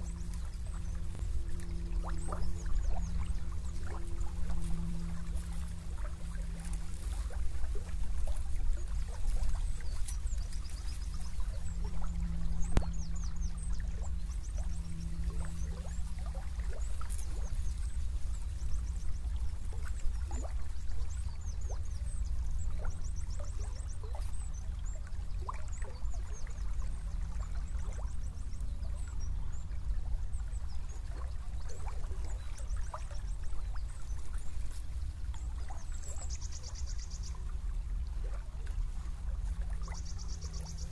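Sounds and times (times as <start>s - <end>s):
river water trickling and gurgling: 0.0s - 40.9s.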